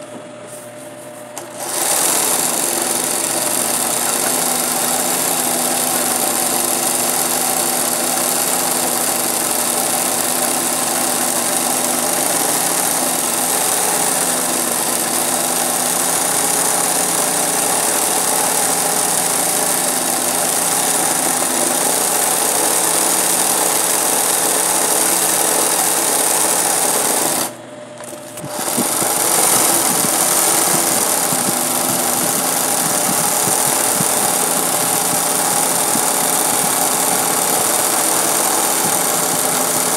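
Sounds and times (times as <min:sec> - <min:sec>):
sewing machine running: 0:01.4 - 0:39.9.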